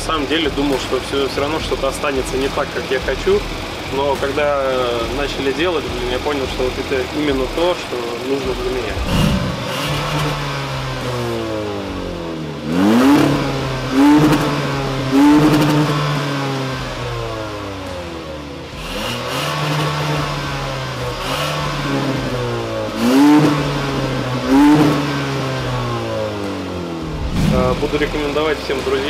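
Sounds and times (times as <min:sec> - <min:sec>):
car engine revving: 0:08.4 - 0:29.0.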